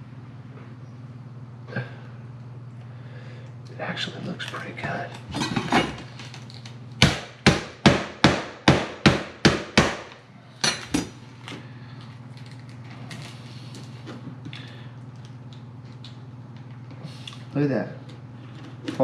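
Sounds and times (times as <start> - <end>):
knife chopping on cutting board: 7.0 - 10.1.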